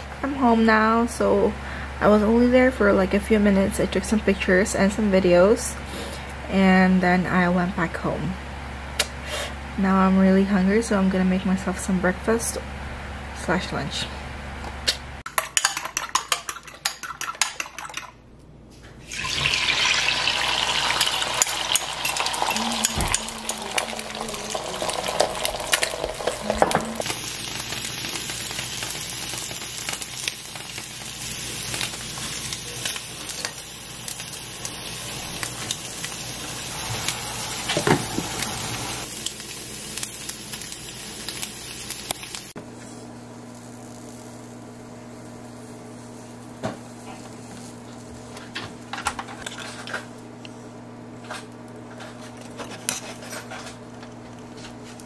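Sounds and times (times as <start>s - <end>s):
egg sizzling in a pan: 19.1s - 49.5s
steady hum: 20.4s - 28.2s.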